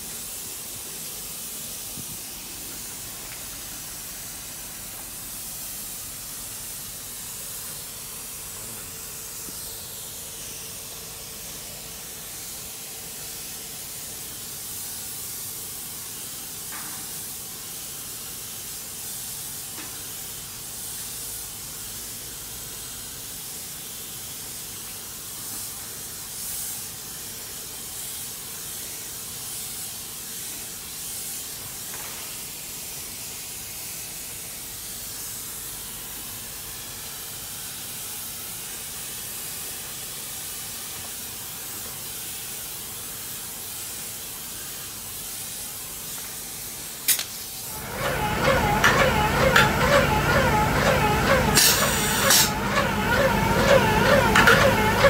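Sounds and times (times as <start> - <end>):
spray gun hissing: 0.0 - 55.0.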